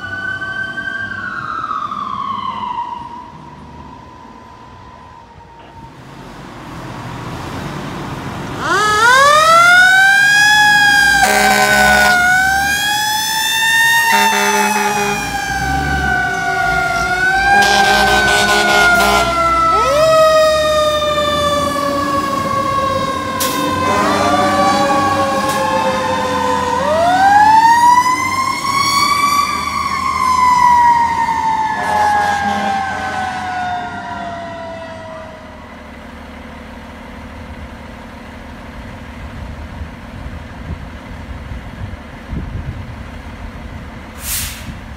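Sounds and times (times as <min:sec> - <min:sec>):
mechanical siren wailing: 0:00.0 - 0:06.0, 0:08.5 - 0:35.8
air horn blasts: 0:11.1 - 0:12.4, 0:14.0 - 0:15.4, 0:17.4 - 0:19.9, 0:23.4 - 0:25.6, 0:31.8 - 0:33.4.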